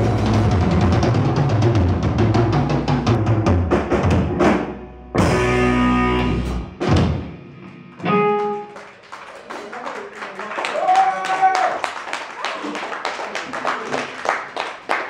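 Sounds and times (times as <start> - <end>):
fast drumming: 0.0 - 4.8
live rock band: 0.0 - 9.0
electric guitar chords ringing: 4.8 - 6.8, 7.4 - 8.8.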